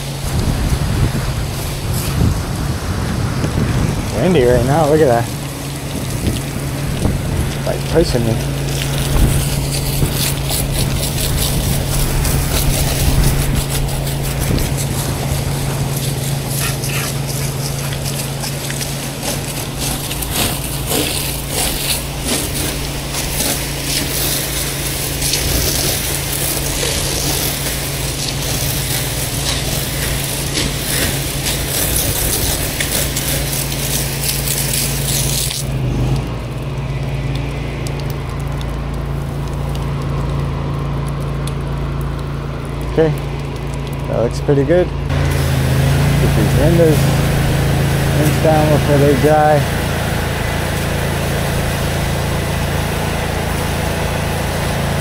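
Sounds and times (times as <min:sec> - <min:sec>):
pressure washer engine humming: 0:00.0 - 0:55.0
pressure washer spraying water: 0:00.0 - 0:55.0.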